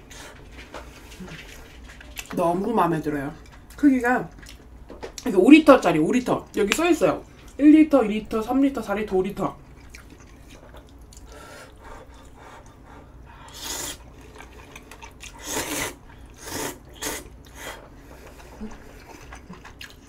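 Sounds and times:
noodles being slurped: 13.5 - 20.0.

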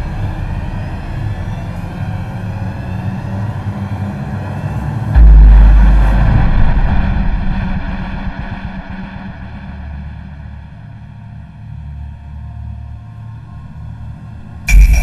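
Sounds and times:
low rumbling drone: 5.0 - 13.7, 14.7 - 15.0
deep boom: 5.2 - 11.0, 14.7 - 15.0.

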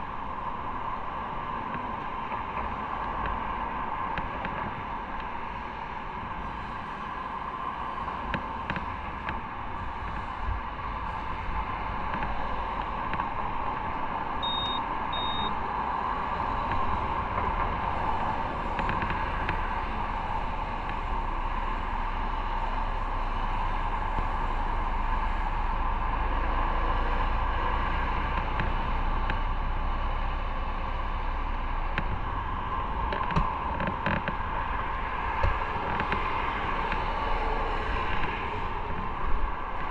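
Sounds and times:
motorcycle engine and road noise: 0.0 - 39.9
short high beeps: 14.4 - 15.6.

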